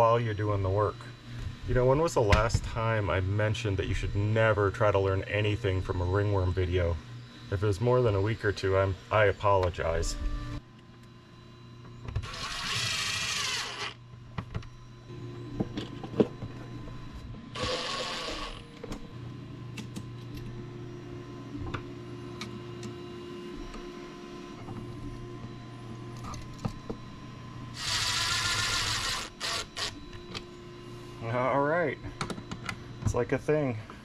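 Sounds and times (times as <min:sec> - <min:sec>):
faint steady hum: 0:00.0 - 0:34.0
cordless drill driving screws: 0:12.2 - 0:14.0, 0:17.6 - 0:18.6, 0:27.8 - 0:30.0.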